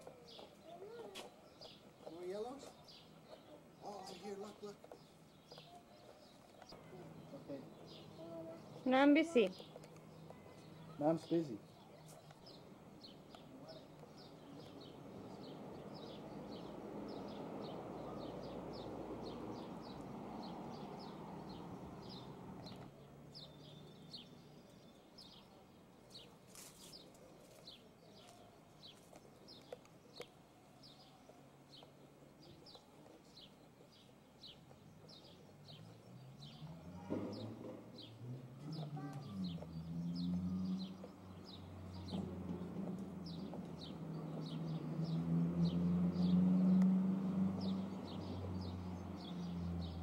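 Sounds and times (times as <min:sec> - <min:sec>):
child's voice: 0:00.4 - 0:01.4, 0:08.1 - 0:08.8, 0:38.6 - 0:39.6.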